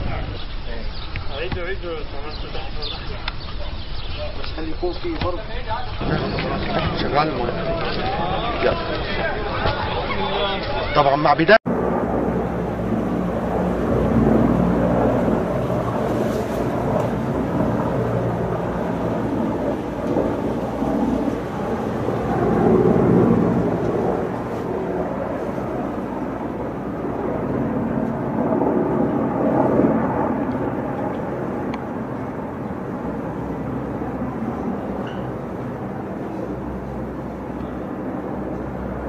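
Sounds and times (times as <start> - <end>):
helicopter flying low: 5.5 - 39.0.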